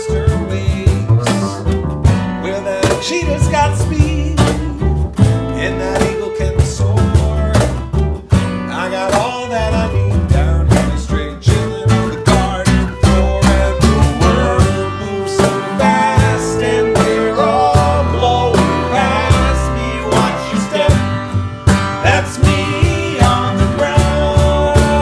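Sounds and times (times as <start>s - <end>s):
plucked upright bass: 0.0s - 25.0s
strummed acoustic guitar: 0.0s - 25.0s
people singing: 8.7s - 25.0s
fiddle: 11.9s - 25.0s.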